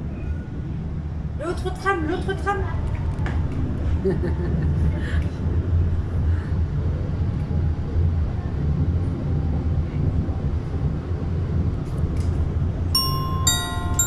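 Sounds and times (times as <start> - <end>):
tram rumbling past: 0.0 - 14.0
glockenspiel-like music notes: 13.0 - 14.0.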